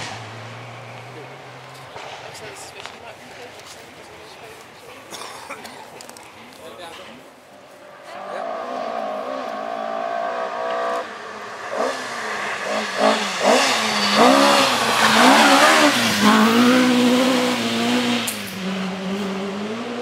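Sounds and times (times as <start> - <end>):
rally car engine revving: 0.0 - 3.0, 8.0 - 20.0.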